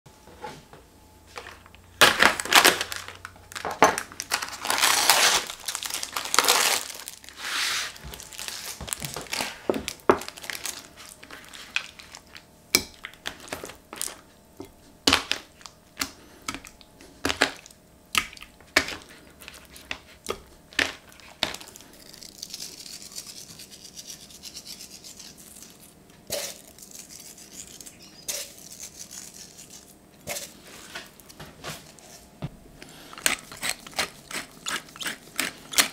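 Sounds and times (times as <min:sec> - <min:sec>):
plastic film crinkling and tearing: 0:02.0 - 0:12.4, 0:13.0 - 0:14.3, 0:20.9 - 0:23.2.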